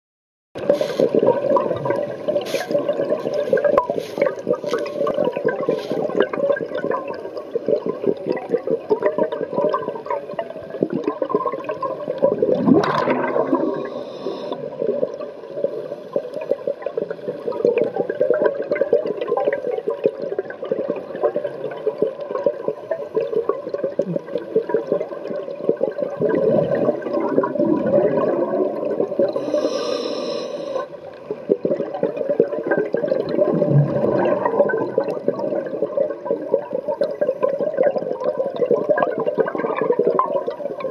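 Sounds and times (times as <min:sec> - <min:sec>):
diver breathing underwater: 0:00.6 - 0:01.5, 0:12.7 - 0:14.8, 0:29.2 - 0:31.0
exhaled bubbles rushing: 0:00.6 - 0:29.7, 0:31.2 - 0:40.9.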